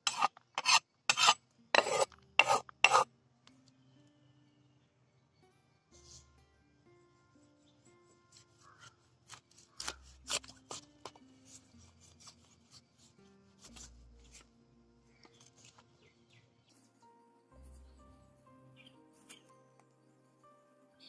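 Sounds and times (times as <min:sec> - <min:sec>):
knife cutting fish on wooden block: 0:00.0 - 0:03.1, 0:08.3 - 0:11.2
soft background music: 0:00.0 - 0:21.0.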